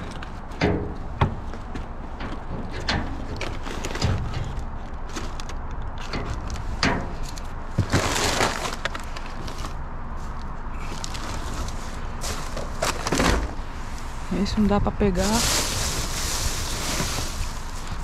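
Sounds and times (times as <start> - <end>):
knocks in metal dumpster: 0.6 - 1.4
plastic bags rustling: 3.2 - 14.1, 15.1 - 18.0.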